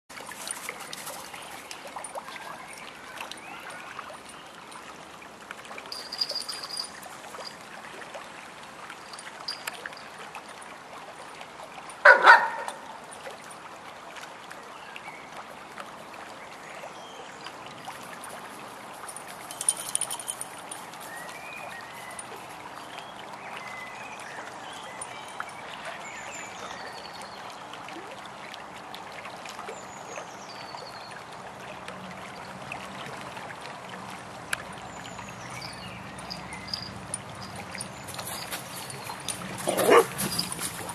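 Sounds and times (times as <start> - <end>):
running water trickling: 0.1 - 40.9
dog barking: 12.0 - 12.9, 39.7 - 40.2.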